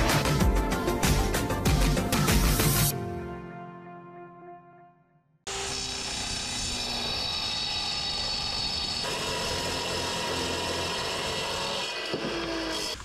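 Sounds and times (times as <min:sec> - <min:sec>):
chop saw cutting metal: 0:05.5 - 0:13.0.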